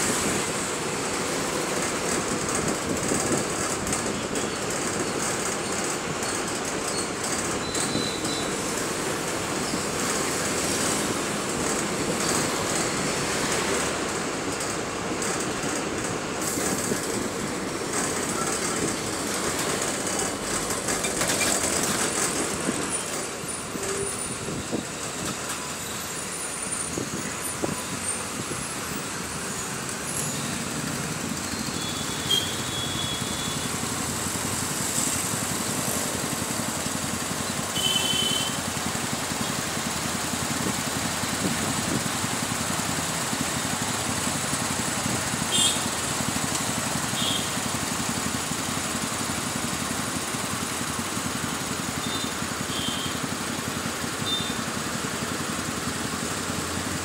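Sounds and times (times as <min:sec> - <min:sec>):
bus engine rumble: 0:00.0 - 0:57.0
road and traffic noise: 0:00.0 - 0:57.0.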